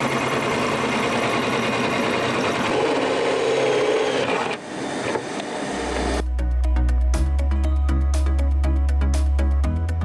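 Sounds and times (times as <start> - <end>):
cordless drill boring a hole: 0.0 - 6.2.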